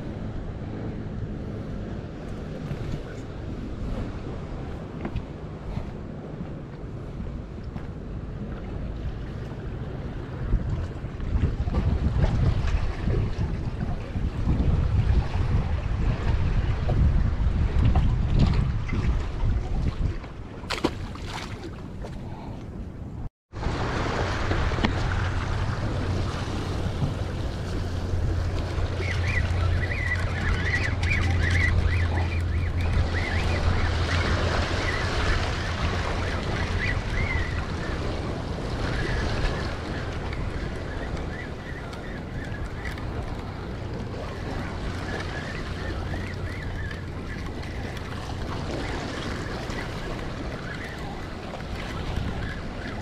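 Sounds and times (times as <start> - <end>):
wind buffeting microphone: 0.0 - 53.0
waves washing against rocks: 23.6 - 53.0.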